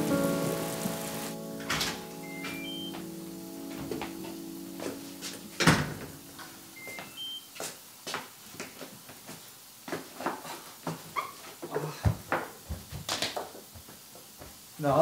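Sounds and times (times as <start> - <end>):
door lock rising beep chime: 2.2 - 3.0, 6.8 - 7.5
footsteps and shoe scuffs: 3.7 - 5.6
door clunking: 5.6 - 6.6.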